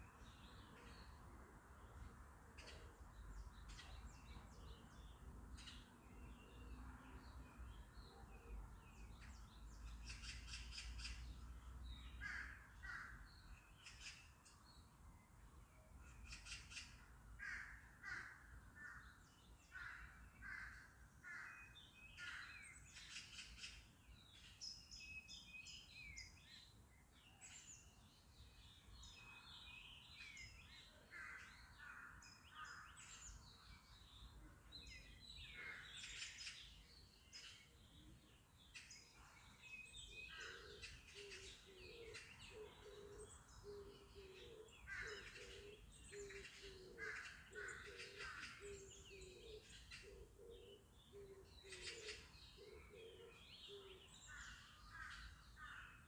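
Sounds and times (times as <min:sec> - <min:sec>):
birds chirping and calling: 0:07.6 - 0:15.0, 0:16.0 - 0:56.0
lower repeated bird call: 0:39.8 - 0:56.0.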